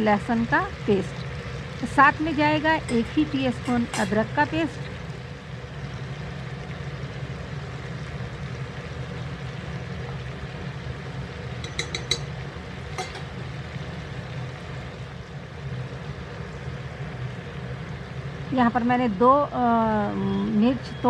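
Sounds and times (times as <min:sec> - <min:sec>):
low kitchen hum: 0:00.0 - 0:21.0
metal spoon clinking on skillet: 0:02.8 - 0:04.2, 0:11.6 - 0:12.4, 0:13.0 - 0:13.3.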